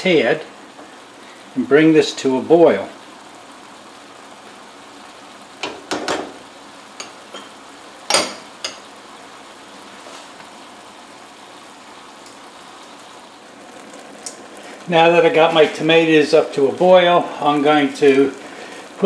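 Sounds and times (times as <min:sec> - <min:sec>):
vegetables sizzling in a frying pan: 0:00.0 - 0:19.0.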